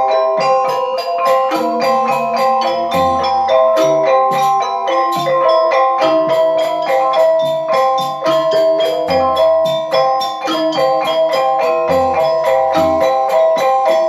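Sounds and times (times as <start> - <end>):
drum strokes: 0.0 - 14.0
metallophones struck in fast patterns: 0.0 - 14.0.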